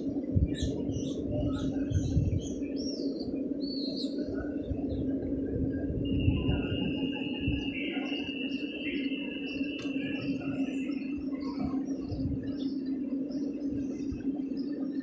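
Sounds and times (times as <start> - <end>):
low electric hum: 0.0 - 15.0
small birds chirping: 0.4 - 5.2, 6.2 - 15.0
thin high whine: 3.8 - 15.0.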